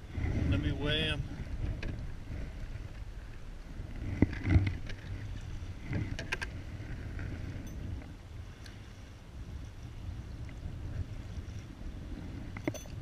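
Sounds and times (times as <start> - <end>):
wind rumbling on microphone: 0.0 - 13.0
handling knocks and clicks: 12.6 - 13.0.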